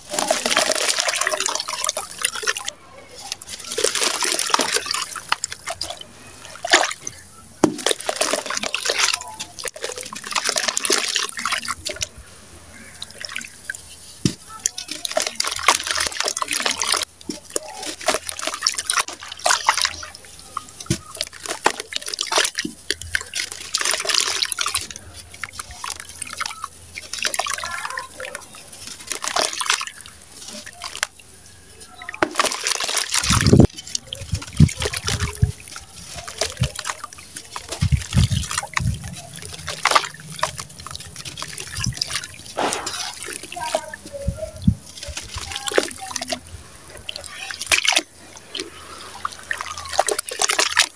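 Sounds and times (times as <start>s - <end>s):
water trickling and splashing: 0.0s - 50.9s
wet grit crunching by hand: 31.8s - 50.9s.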